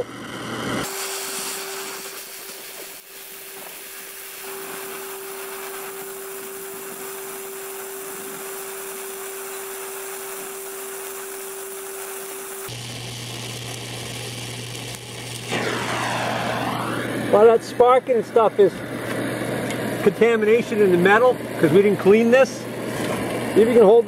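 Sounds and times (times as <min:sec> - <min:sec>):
welding torch flame hissing: 0:00.0 - 0:24.0
steady even tone: 0:15.5 - 0:17.8.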